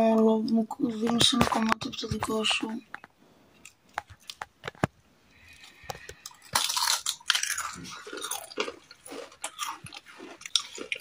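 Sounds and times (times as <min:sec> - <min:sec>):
crunching and chewing: 0:02.9 - 0:11.0
chips snapping: 0:05.8 - 0:11.0.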